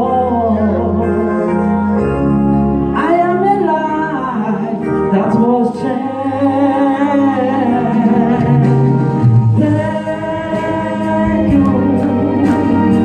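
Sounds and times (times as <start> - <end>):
choir singing gospel song: 5.7 - 13.0.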